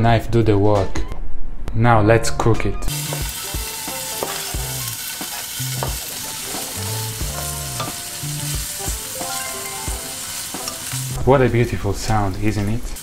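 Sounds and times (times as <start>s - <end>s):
bacon sizzling in a frying pan: 2.9s - 13.0s
spatula tapping and scraping pan: 4.1s - 8.0s.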